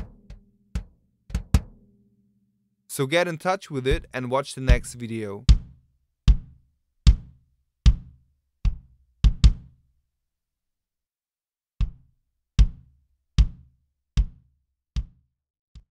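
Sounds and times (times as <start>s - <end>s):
sampled drum hits: 0.0s - 2.0s, 4.7s - 6.5s.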